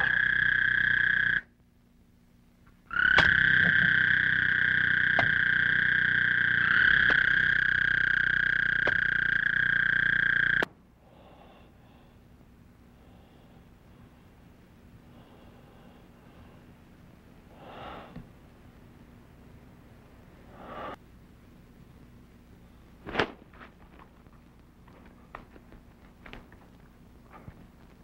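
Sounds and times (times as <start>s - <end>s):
frogs trilling: 0.0s - 1.5s, 2.8s - 10.7s.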